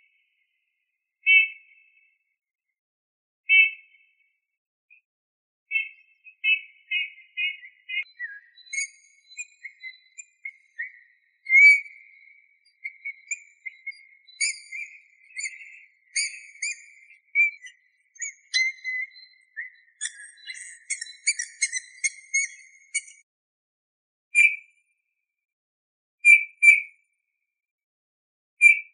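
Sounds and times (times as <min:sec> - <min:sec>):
bullfinch singing: 0:05.7 - 0:23.2.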